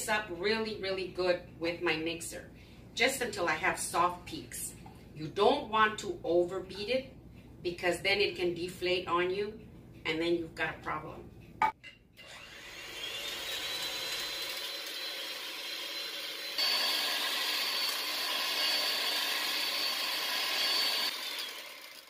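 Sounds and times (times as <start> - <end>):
electric hand mixer whining: 12.2 - 22.0.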